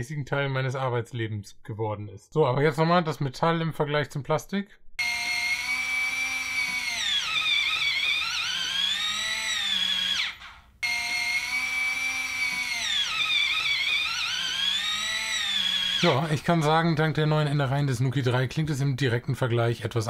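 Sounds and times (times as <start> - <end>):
electric lock motor whining: 5.0 - 16.2.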